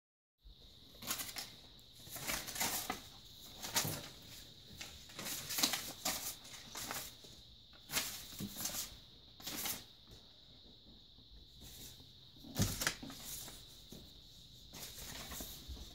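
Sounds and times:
paper rustling and flapping: 0:00.9 - 0:07.2, 0:07.8 - 0:09.9, 0:12.4 - 0:13.7, 0:14.7 - 0:15.9.

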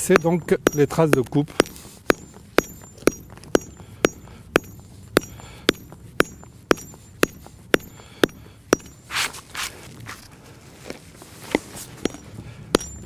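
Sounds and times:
bush hammer striking stone: 0:00.0 - 0:09.4, 0:11.5 - 0:13.0
brief rustle: 0:09.1 - 0:12.0.

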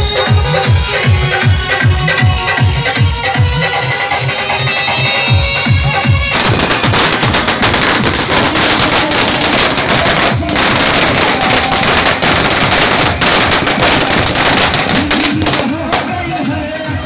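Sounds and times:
electronic dance music: 0:00.0 - 0:17.0
firecrackers popping: 0:05.2 - 0:16.6.

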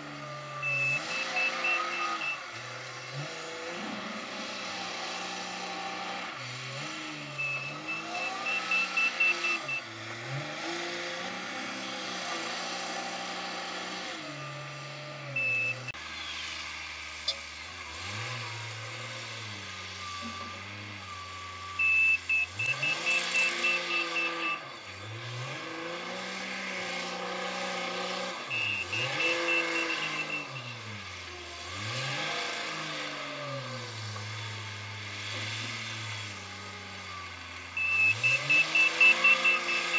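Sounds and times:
diesel engine revving: 0:00.0 - 0:39.9
rapid reversing beeps: 0:00.5 - 0:02.5, 0:07.2 - 0:09.9, 0:15.4 - 0:15.9, 0:19.9 - 0:24.8, 0:28.5 - 0:30.9, 0:37.8 - 0:39.9.

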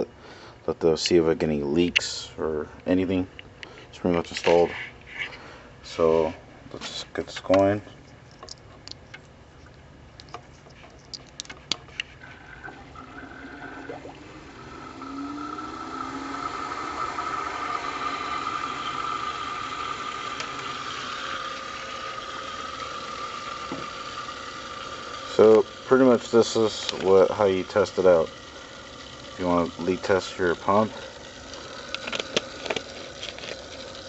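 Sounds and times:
pump whine: 0:11.8 - 0:34.0
water circulating hiss: 0:11.9 - 0:34.0
power leads clicking: 0:12.5 - 0:34.0.

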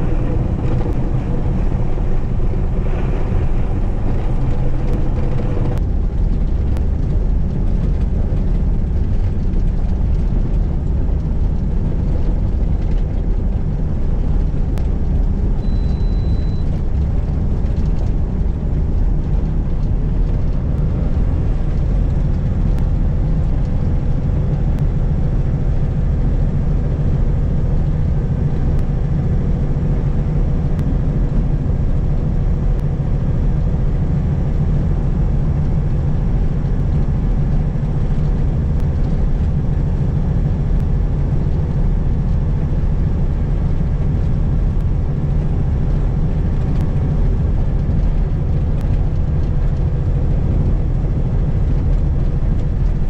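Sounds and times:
road noise: 0:00.0 - 0:53.0
truck diesel engine drone: 0:00.0 - 0:53.0
short high beep: 0:15.6 - 0:16.7.

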